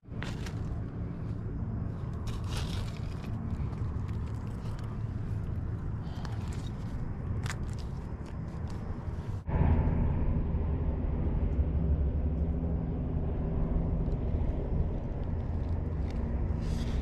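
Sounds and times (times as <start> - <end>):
steady low rumble: 0.0 - 17.0
leaves crackling: 0.1 - 9.4
knife scraping through soil: 2.0 - 5.0, 16.1 - 17.0.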